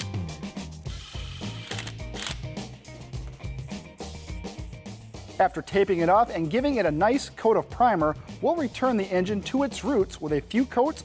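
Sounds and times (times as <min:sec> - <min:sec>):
background music with beat: 0:00.0 - 0:11.0
cordless power tool whirring: 0:00.9 - 0:02.4.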